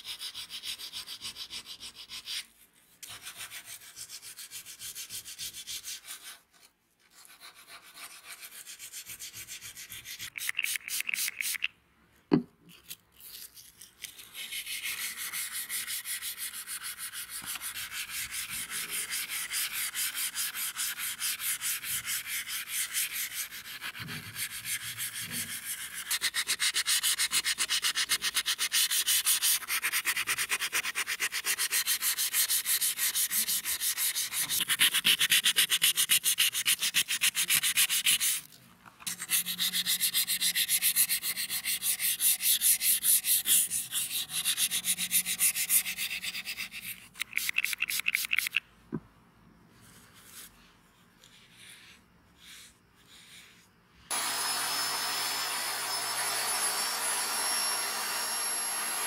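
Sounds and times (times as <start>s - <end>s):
sandpaper rasping on razor blade: 0.0s - 6.4s, 7.1s - 11.7s, 13.2s - 38.5s, 39.1s - 48.6s.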